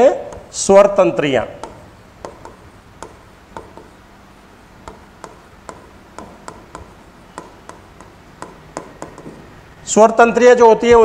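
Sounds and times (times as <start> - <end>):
stylus tapping on touchscreen: 0.2 - 0.6, 1.6 - 4.1, 4.8 - 9.6.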